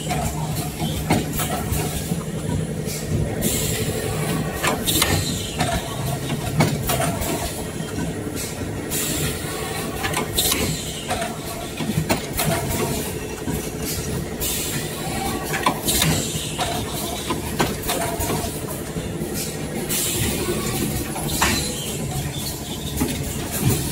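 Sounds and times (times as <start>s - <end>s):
machine hum: 0.0s - 23.9s
pneumatic air hiss: 2.9s - 4.0s, 8.4s - 9.5s, 19.3s - 20.7s
sharp machine clanks: 19.4s - 23.9s.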